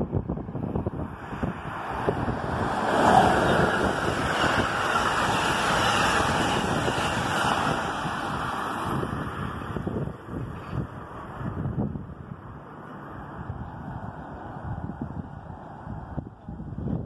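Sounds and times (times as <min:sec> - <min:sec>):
train passing at speed: 0:00.0 - 0:17.0
wind buffeting microphone: 0:00.0 - 0:17.0
steel wheels on rail: 0:00.6 - 0:11.8.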